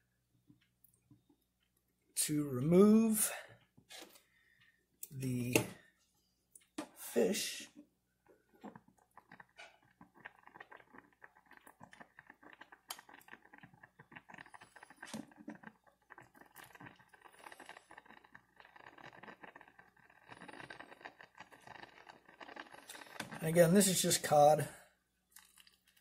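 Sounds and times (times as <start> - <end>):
water simmering in saucepan: 6.6 - 26.0.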